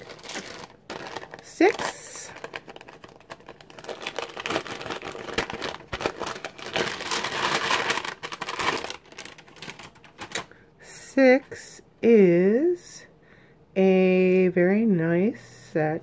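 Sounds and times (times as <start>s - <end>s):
paper envelope crinkling: 0.0s - 10.6s.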